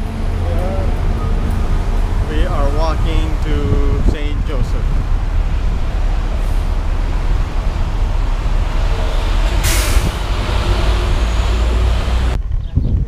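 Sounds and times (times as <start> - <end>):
street traffic rumble: 0.0 - 13.0
truck air brakes hissing: 8.8 - 12.0.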